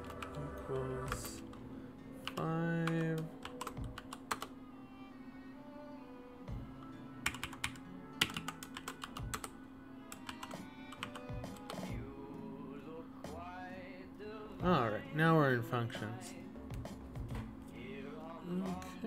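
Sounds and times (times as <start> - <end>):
computer keyboard typing: 0.0 - 1.6, 2.2 - 4.5, 7.2 - 9.5, 10.1 - 11.9
soft background music: 0.0 - 19.0.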